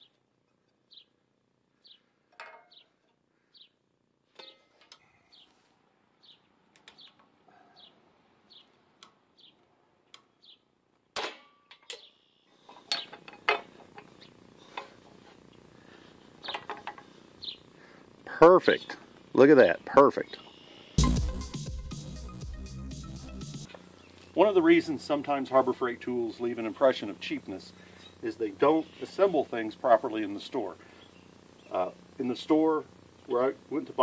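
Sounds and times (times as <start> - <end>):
bird chirping: 0.9 - 1.2, 1.8 - 2.1, 2.7 - 3.8, 6.2 - 10.7, 17.4 - 17.7, 20.2 - 21.2, 30.8 - 31.9.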